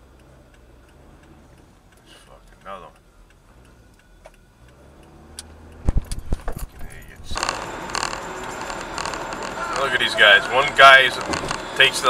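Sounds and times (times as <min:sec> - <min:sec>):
road noise inside car: 0:00.0 - 0:12.0
sharp clicks and knocks: 0:05.3 - 0:12.0
low hum inside car: 0:05.6 - 0:12.0.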